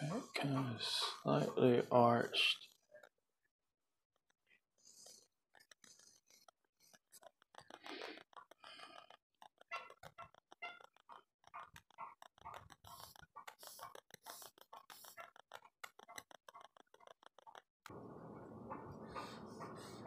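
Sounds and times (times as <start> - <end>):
charcoal scratching on paper: 4.2 - 8.4, 11.6 - 17.5, 19.1 - 20.0.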